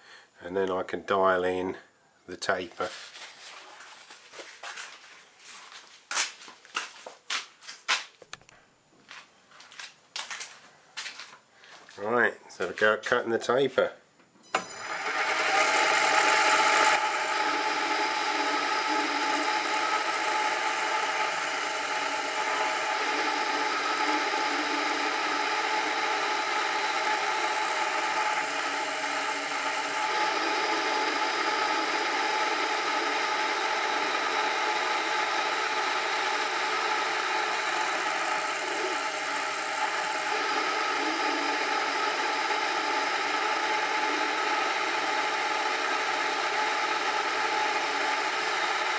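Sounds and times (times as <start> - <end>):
metal lathe running: 14.6 - 48.9.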